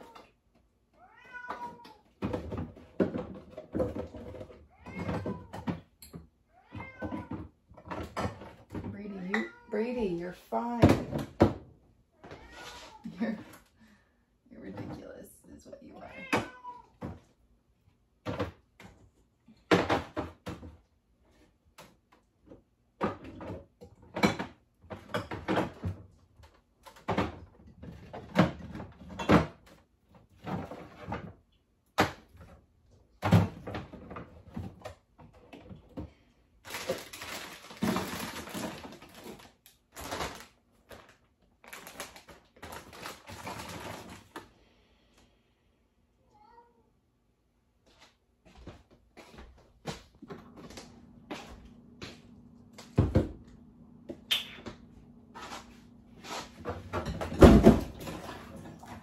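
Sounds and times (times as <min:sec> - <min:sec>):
cat meowing: 0:01.0 - 0:02.1, 0:06.5 - 0:07.4, 0:09.3 - 0:09.7, 0:12.2 - 0:13.1, 0:16.0 - 0:17.0, 0:46.3 - 0:46.9.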